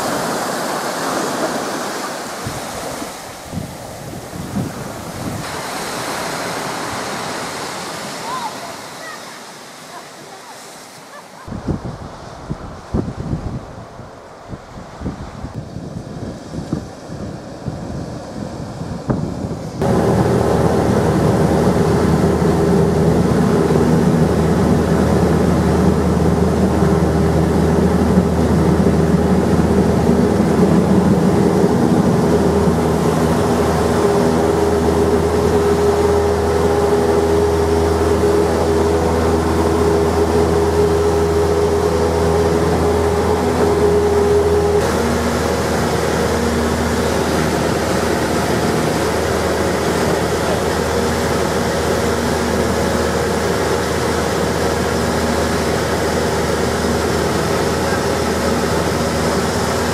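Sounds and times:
piston engine and propeller: 0.0 - 59.9.

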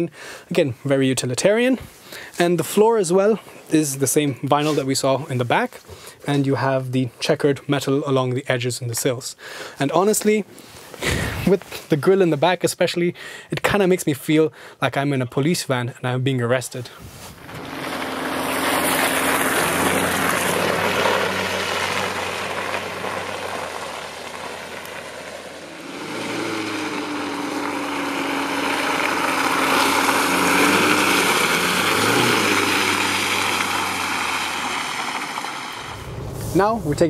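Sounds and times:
van engine and tyre drone: 17.3 - 37.0.

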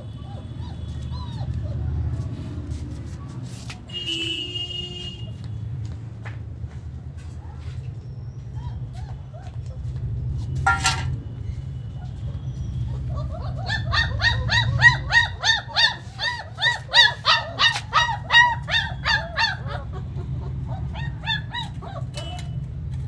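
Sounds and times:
puppy yelping: 0.0 - 2.4, 8.2 - 10.0, 11.9 - 22.6.

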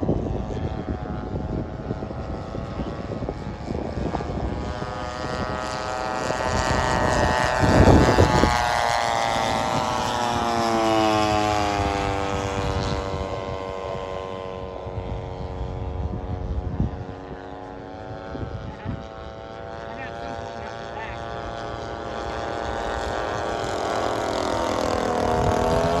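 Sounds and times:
model plane engines droning: 0.0 - 26.0
loud rumbling rush: 18.0 - 26.0.

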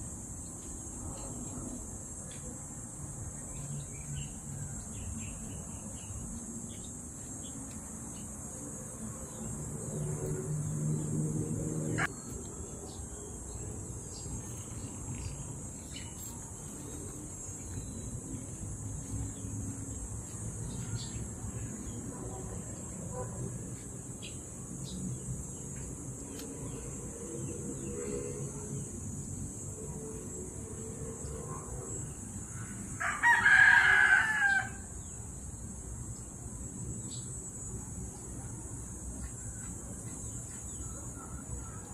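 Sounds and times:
insect chorus drone: 0.0 - 41.9
rooster crowing: 33.0 - 34.9.

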